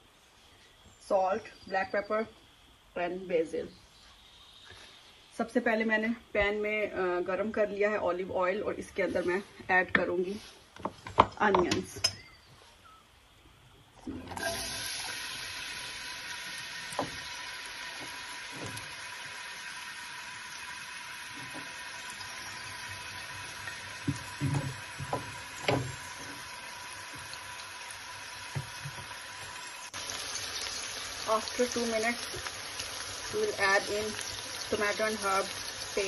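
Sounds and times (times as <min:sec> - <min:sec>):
onion sizzling in oil: 0:14.3 - 0:36.0.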